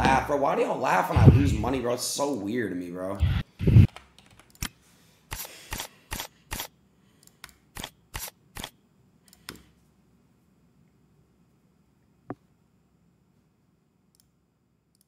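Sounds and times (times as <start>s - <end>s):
computer mouse clicking: 9.3s - 9.7s.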